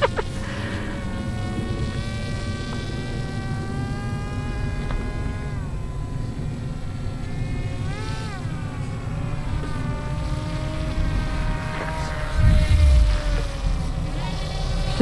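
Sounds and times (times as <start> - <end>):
model airplane motor buzzing: 0.0 - 15.0
wind rumble on microphone: 8.9 - 15.0.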